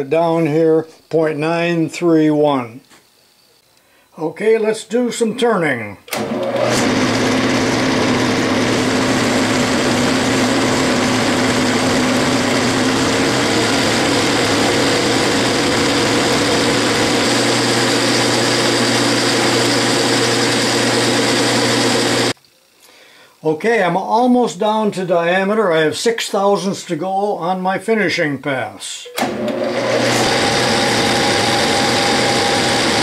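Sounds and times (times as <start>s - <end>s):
metal lathe running under load: 6.2s - 22.4s, 29.2s - 33.0s.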